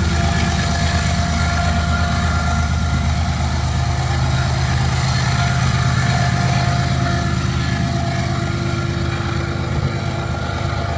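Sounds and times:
diesel locomotive engine: 0.0 - 10.9.

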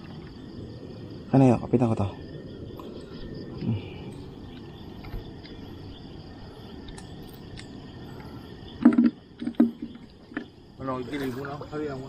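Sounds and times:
crickets chirring: 0.0 - 12.0
faint ticks: 6.8 - 10.5.

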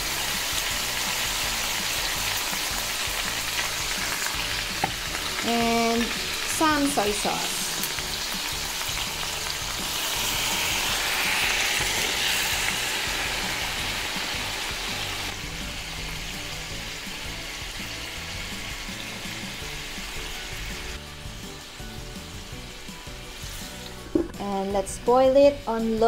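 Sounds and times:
meat and sauce sizzling in a pan: 0.0 - 24.2.

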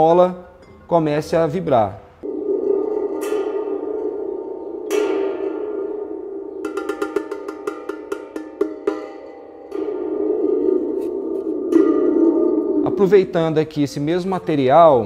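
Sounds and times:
spring drum metallic rumble: 2.8 - 14.1.

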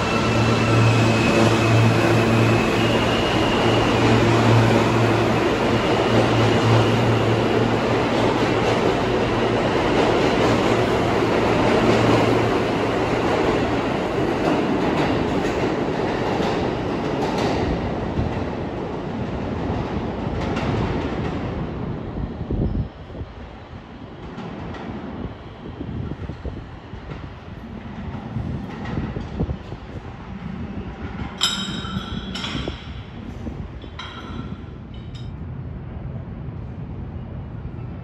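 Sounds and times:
train wheels rumbling on rail: 0.0 - 38.0.

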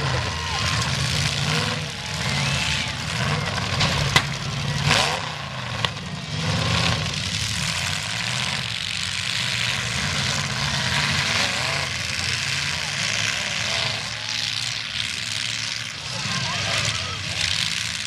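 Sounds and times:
car engines revving: 0.0 - 18.0
cars colliding with bangs: 3.3 - 4.7.

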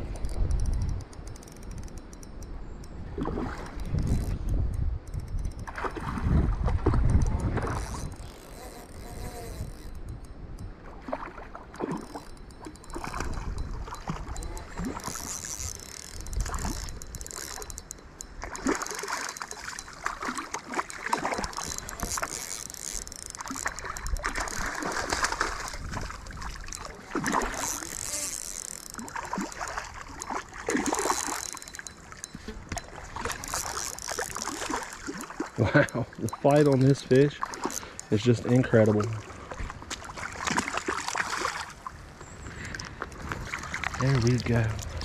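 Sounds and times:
wind rumble on microphone: 0.0 - 18.7, 21.2 - 28.0, 42.0 - 45.0
fish splashing in water: 10.9 - 35.6, 39.2 - 42.0.

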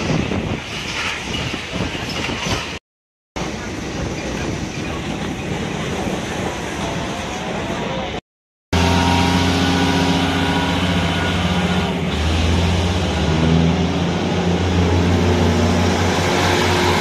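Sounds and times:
diesel train engine droning: 8.8 - 17.0.

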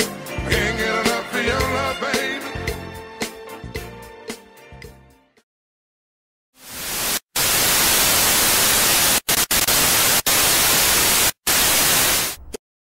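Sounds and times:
tv static hiss: 6.6 - 12.4.

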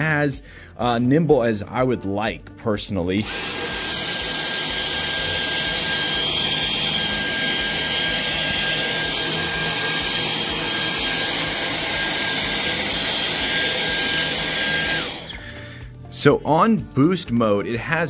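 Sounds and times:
vacuum cleaner running on carpet: 3.2 - 15.5.

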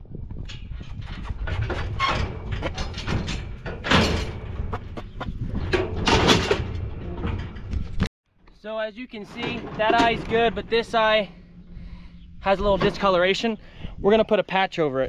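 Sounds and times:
metal clangs: 0.4 - 8.1, 9.2 - 13.5
steel chute panels rattling: 0.4 - 8.1, 8.7 - 13.9.

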